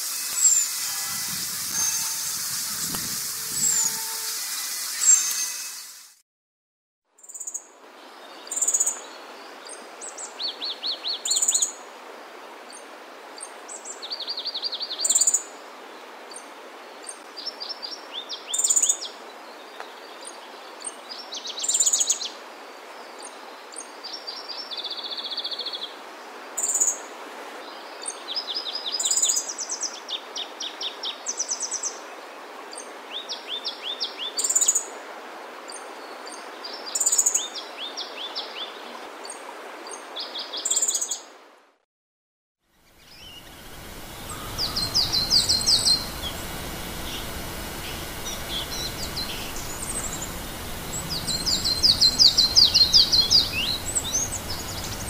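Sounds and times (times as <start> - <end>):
background hiss: 42.8 - 55.0
bird calling high notes: 43.1 - 55.0
short lower bird notes: 43.2 - 55.0.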